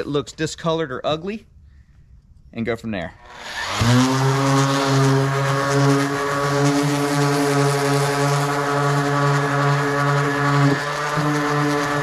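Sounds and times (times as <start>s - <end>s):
orbital sander on plastic: 3.2s - 12.0s.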